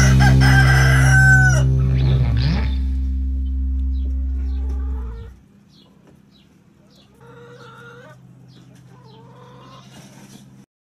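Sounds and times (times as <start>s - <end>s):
loud low drone: 0.0s - 5.4s
chickens clucking: 4.0s - 10.6s.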